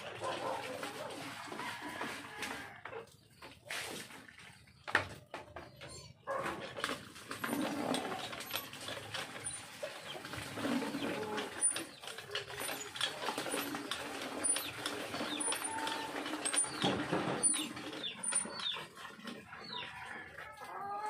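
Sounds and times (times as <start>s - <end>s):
hand water pump creaking: 4.8s - 20.6s.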